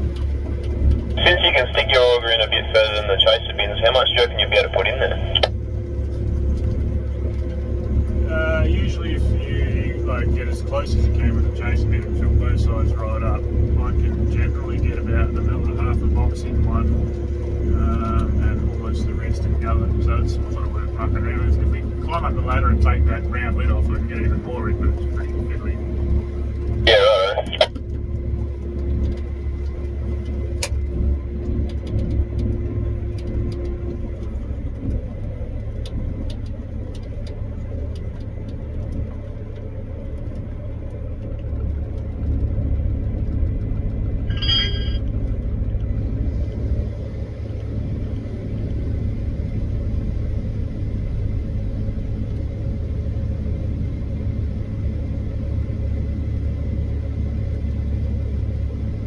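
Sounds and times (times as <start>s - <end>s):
combine harvester rumble: 0.0s - 59.0s
high electronic beep: 44.3s - 45.0s.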